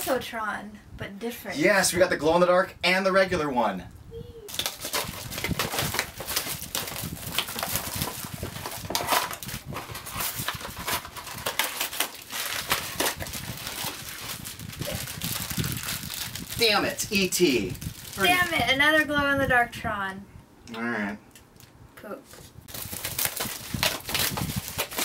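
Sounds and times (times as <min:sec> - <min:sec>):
cardboard boxes tearing: 0:04.5 - 0:16.4, 0:22.7 - 0:25.0
foil bags crinkling: 0:04.5 - 0:18.6, 0:22.7 - 0:25.0.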